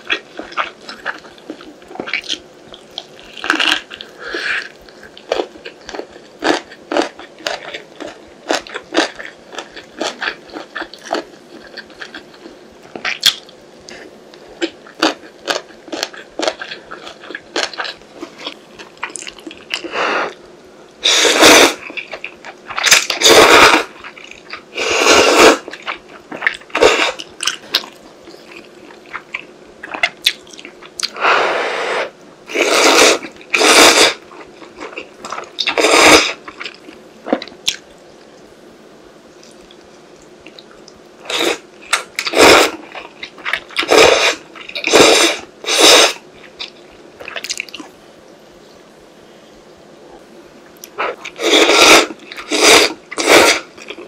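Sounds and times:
chewing: 0.0s - 20.4s, 39.3s - 47.9s
noodles slurped: 31.0s - 34.2s, 51.0s - 53.7s.

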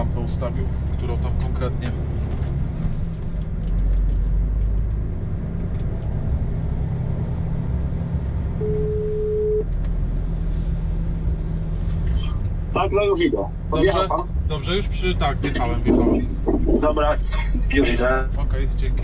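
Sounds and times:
diesel engine rumbling: 0.0s - 19.0s
phone ringback beep: 8.6s - 9.6s.

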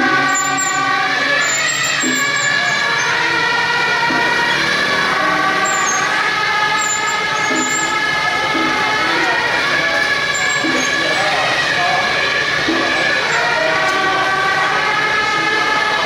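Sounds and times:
horn loudspeaker tones: 0.0s - 16.0s.

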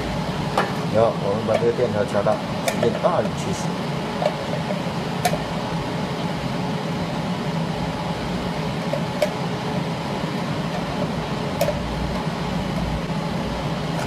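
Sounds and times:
cooling fan running: 0.0s - 14.0s.

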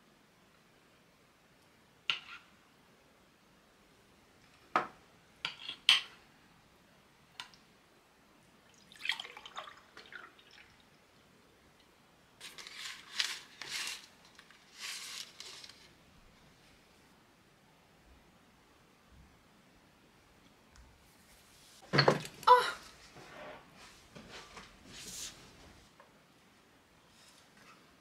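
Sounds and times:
packaging rustling: 12.4s - 15.9s.

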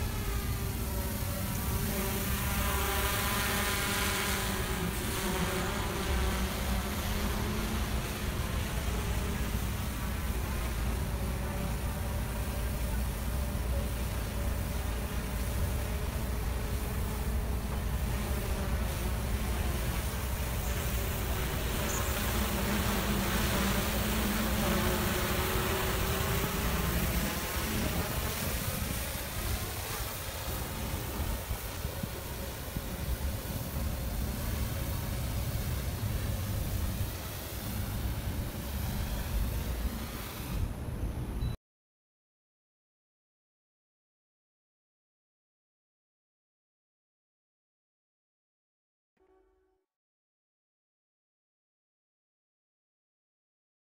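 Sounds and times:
drone propellers buzzing: 0.0s - 41.3s.

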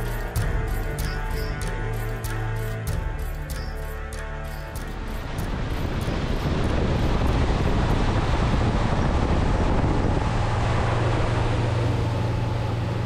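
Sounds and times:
boat engine drone: 0.0s - 13.0s
wind on microphone: 4.8s - 13.0s.

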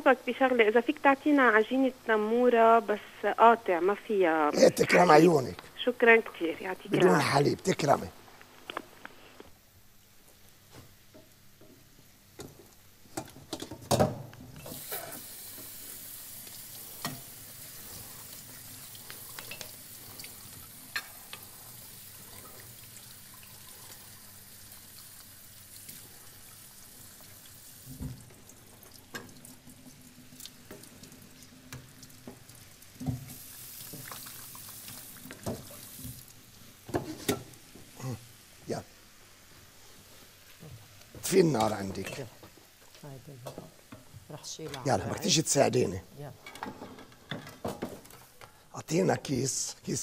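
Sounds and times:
steady hiss: 0.0s - 50.0s
pans and utensils clattering: 13.2s - 14.9s, 19.3s - 21.5s, 36.9s - 37.6s, 41.8s - 42.4s, 46.4s - 48.3s.

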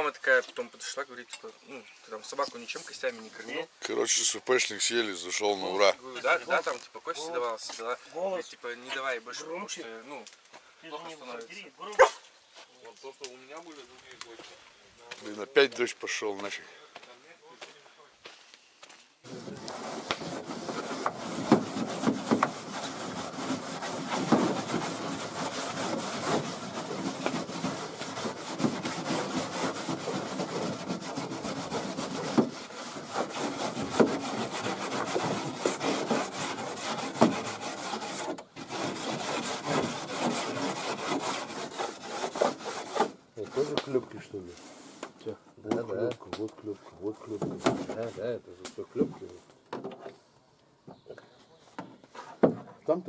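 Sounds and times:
scraping on a boat hull: 19.3s - 45.2s, 47.0s - 48.4s
sharp knocks: 19.5s - 32.6s.

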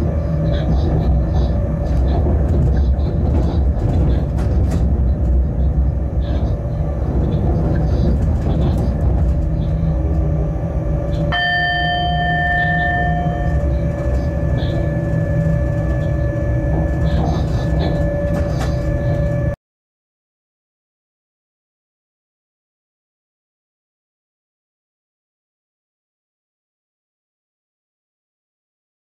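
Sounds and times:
high ringing whine: 0.0s - 19.6s
locomotive rumble on rails: 0.0s - 19.6s.

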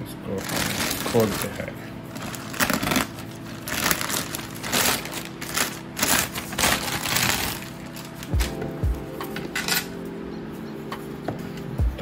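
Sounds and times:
plastic mailer bag rustling: 0.3s - 8.7s.

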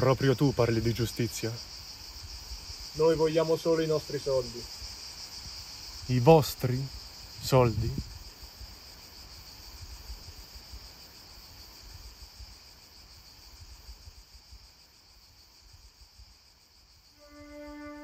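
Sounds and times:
crickets chirping: 0.0s - 18.0s
sustained music notes: 17.2s - 18.0s.

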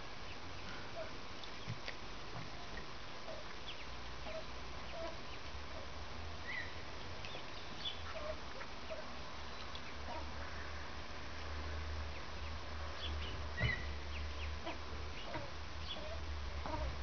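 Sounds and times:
ducks giving soft low calls: 0.0s - 10.8s, 12.0s - 17.0s.

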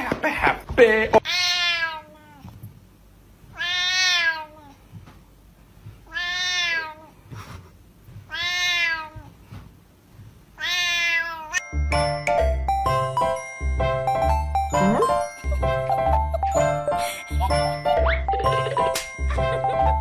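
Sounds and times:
cat meowing: 1.2s - 2.5s, 3.5s - 4.8s, 6.0s - 7.2s, 8.3s - 9.4s, 10.6s - 11.6s.

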